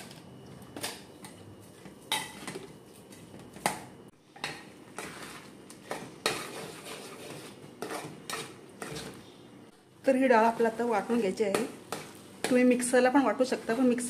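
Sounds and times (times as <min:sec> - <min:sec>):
metal spoon scraping a metal pot: 0:05.0 - 0:09.2.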